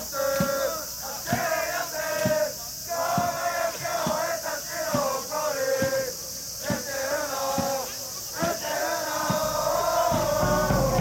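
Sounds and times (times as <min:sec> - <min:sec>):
crowd chanting in unison: 0:00.0 - 0:11.0
drum beating: 0:09.2 - 0:11.0.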